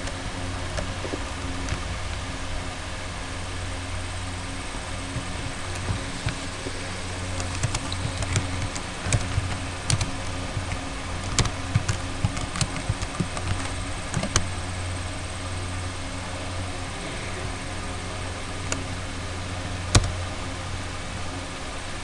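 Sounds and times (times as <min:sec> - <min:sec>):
steady low hum: 0:00.0 - 0:22.0
keyboard typing: 0:05.1 - 0:14.5, 0:19.9 - 0:20.2.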